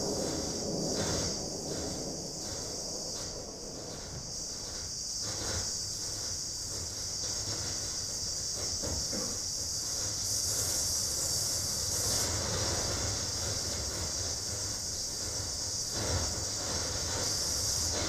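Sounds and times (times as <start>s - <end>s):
low rumble: 0.0s - 6.2s
high electronic noise hiss: 0.0s - 18.0s.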